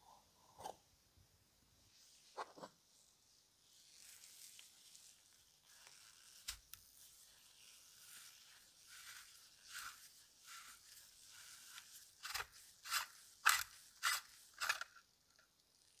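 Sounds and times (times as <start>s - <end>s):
gloves rubbing on leather and metal: 3.6s - 14.8s.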